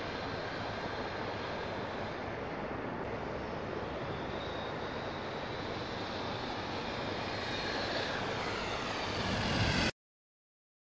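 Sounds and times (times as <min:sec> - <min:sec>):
rushing outdoor noise: 0:00.0 - 0:10.0.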